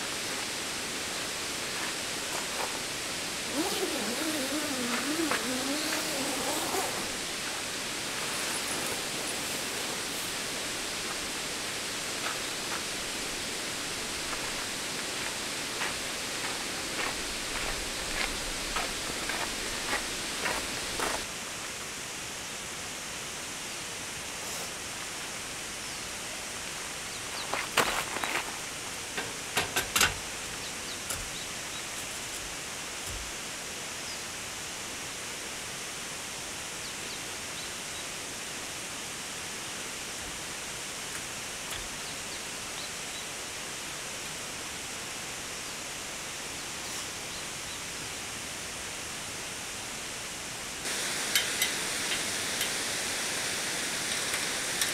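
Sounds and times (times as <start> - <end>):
steady rushing noise: 0.0 - 21.9.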